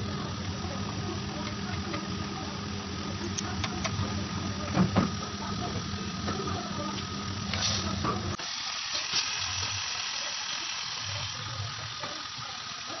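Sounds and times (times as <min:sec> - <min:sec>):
curry hissing in a pan: 0:07.5 - 0:13.0.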